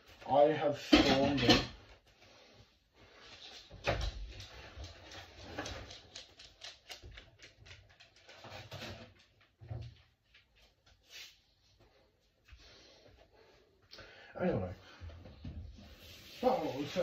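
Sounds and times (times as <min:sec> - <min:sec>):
dog claws clicking on tiles: 0:03.8 - 0:08.7.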